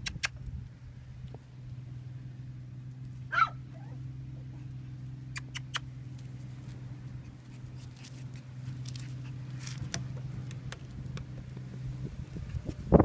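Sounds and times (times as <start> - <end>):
steady low hum: 0.0 - 13.0
puppy paws scuffling on gravel: 5.9 - 13.0.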